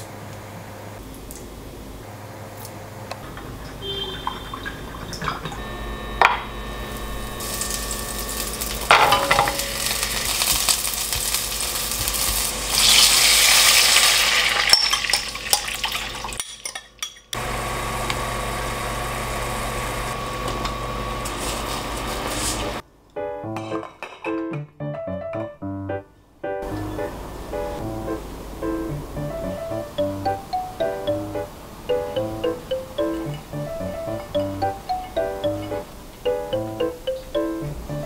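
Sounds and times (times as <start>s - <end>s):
garlic sizzling in hot oil: 6.8s - 16.4s
spoon clinking against glass cup: 14.6s - 15.7s.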